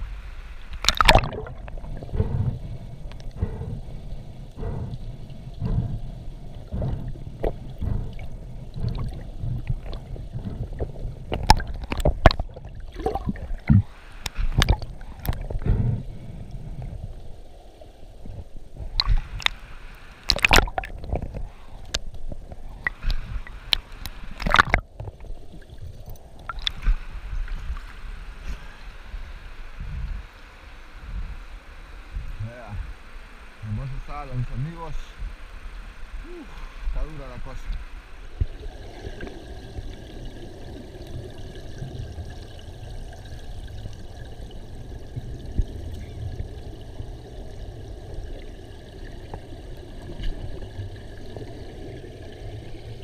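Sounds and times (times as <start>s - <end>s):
water sloshing and gurgling: 0.6s - 29.2s, 32.1s - 53.0s
low rumble: 1.1s - 13.9s, 14.5s - 19.5s.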